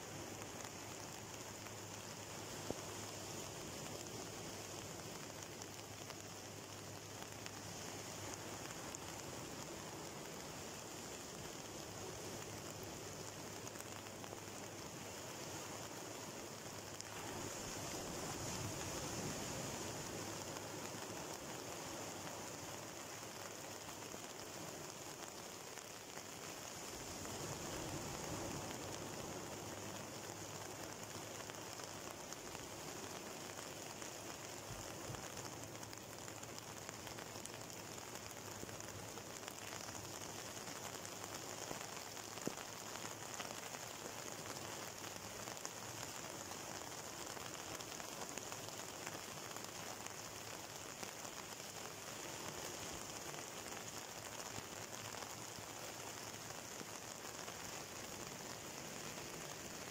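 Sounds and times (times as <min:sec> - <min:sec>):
sea waves on rocky shore: 0:17.0 - 0:22.4.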